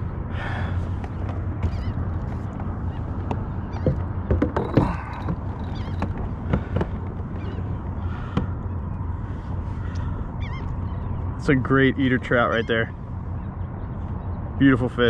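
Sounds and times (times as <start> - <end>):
steady low rumble: 0.0 - 15.0
bird calls: 0.4 - 15.0
fish knocking on plastic deck: 2.6 - 7.2.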